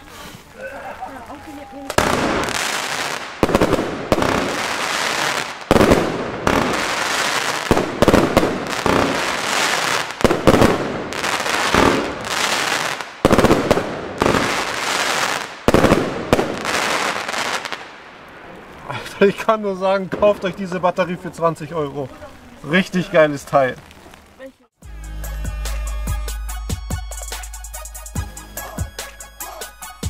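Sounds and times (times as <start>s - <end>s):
crackling firework stars: 0.0s - 24.7s
firework launch bangs: 1.9s - 17.9s.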